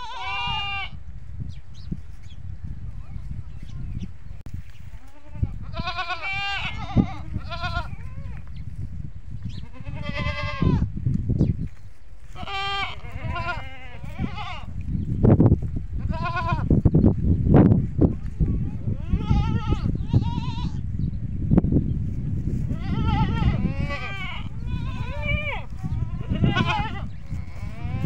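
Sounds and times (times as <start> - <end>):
goats bleating: 0.0 - 1.0, 5.0 - 8.4, 9.6 - 10.9, 12.3 - 14.7, 16.0 - 16.7, 18.2 - 20.8, 22.7 - 28.0.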